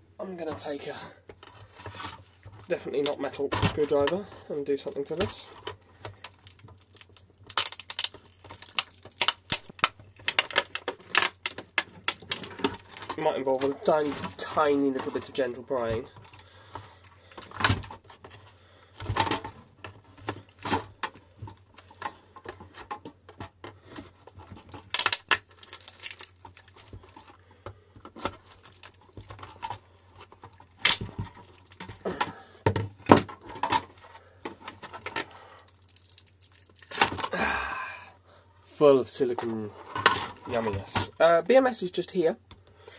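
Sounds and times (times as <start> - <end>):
glue peeling and tearing: 6.4 - 12.9, 24.5 - 27.2.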